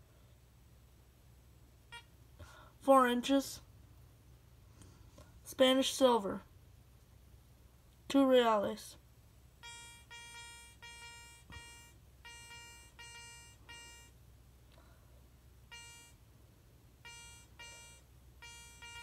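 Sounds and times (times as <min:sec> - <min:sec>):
metal detector beeping: 0:09.6 - 0:14.2, 0:15.7 - 0:16.2, 0:17.0 - 0:19.0.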